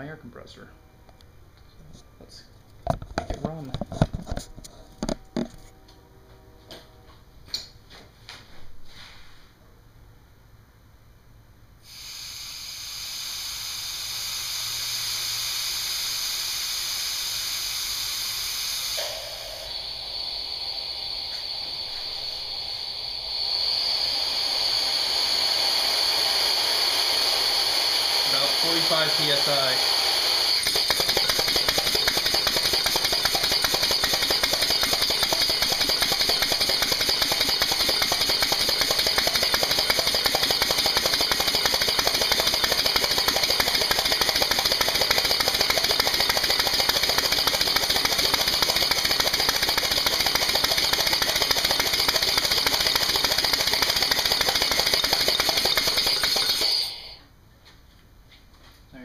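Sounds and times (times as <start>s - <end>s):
hiss of escaping air: 11.8s - 30.6s, 55.9s - 57.2s
air engine chattering: 18.9s - 57.2s.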